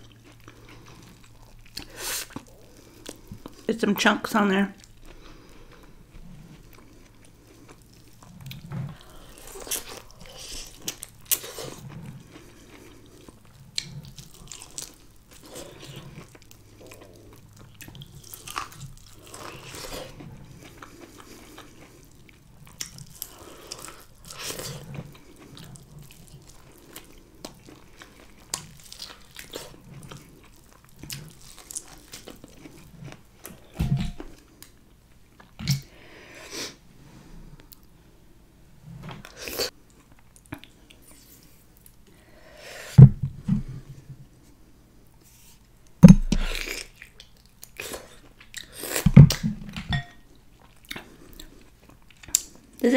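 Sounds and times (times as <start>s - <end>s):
chewing corn on the cob: 0.0s - 3.7s, 4.8s - 33.7s.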